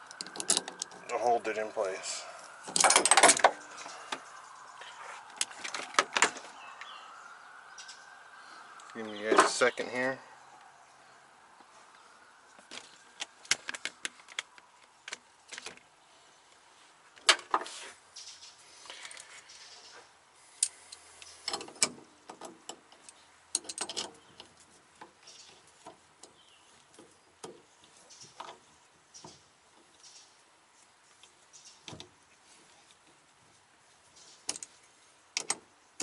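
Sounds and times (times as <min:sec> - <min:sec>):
metal wrenches clicking: 0:21.4 - 0:24.6.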